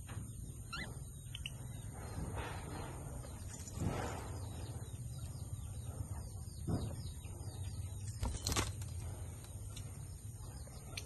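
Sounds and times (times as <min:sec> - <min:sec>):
steady low hum: 0:00.0 - 0:11.0
budgerigars chirping: 0:00.6 - 0:02.5.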